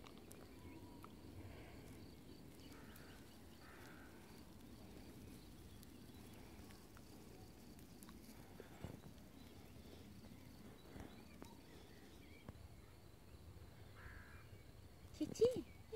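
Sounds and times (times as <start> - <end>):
soft ticks: 1.8 - 9.6.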